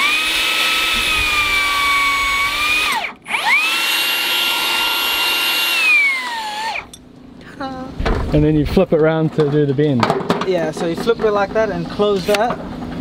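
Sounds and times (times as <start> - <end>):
electric motor whining: 0.0 - 7.0.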